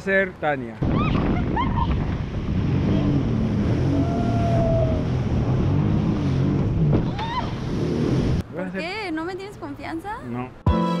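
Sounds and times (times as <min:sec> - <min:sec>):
wind buffeting microphone: 0:00.8 - 0:08.4
jet ski engine running: 0:02.0 - 0:08.4.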